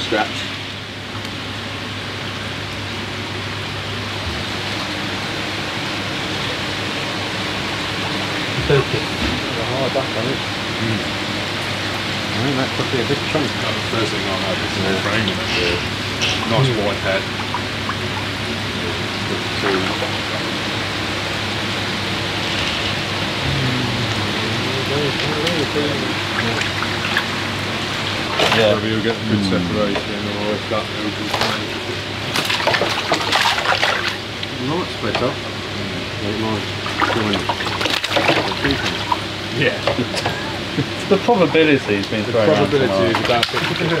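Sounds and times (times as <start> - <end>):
low steady hum: 0.0 - 44.0
water rushing and splashing: 21.7 - 29.0, 31.5 - 34.3.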